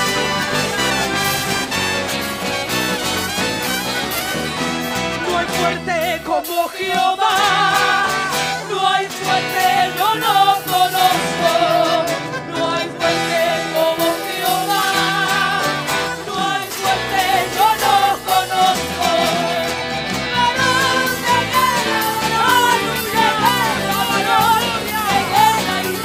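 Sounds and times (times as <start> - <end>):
instrumental backing: 0.0 - 26.0
worship chorus singing: 5.3 - 26.0.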